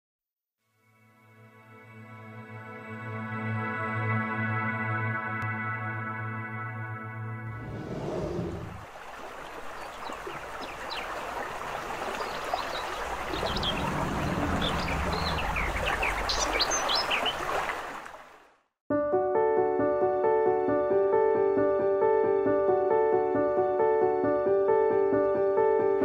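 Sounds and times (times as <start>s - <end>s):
stream water running: 7.6s - 18.6s
small birds chirping: 9.6s - 17.6s.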